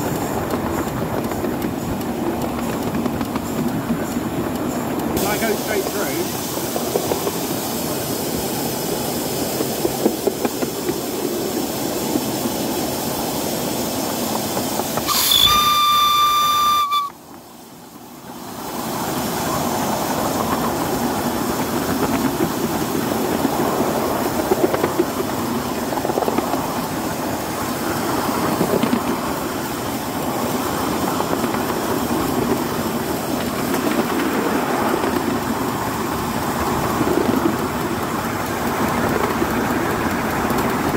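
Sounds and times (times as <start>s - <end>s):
miniature steam locomotive running: 0.0s - 40.9s
steam whistle blast: 15.0s - 17.2s.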